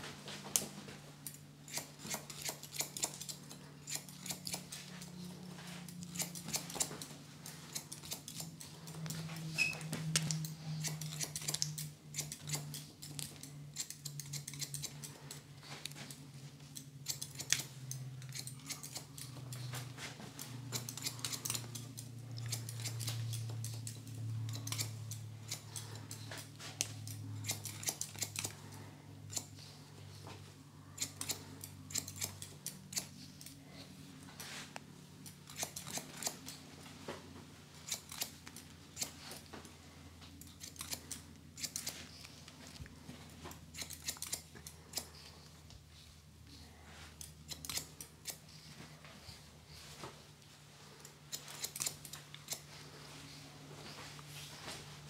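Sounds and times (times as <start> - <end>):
low steady hum: 0.0 - 55.0
scissors snipping hair: 0.5 - 9.4, 10.1 - 29.8, 31.0 - 33.6, 34.8 - 36.6, 37.8 - 39.5, 40.3 - 45.6, 47.1 - 48.7, 51.0 - 52.8.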